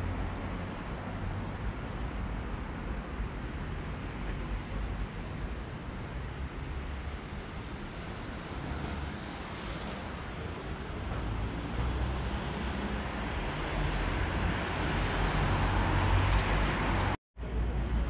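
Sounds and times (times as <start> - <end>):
street traffic rumble: 0.0 - 18.0
vehicle passing by: 11.5 - 17.2.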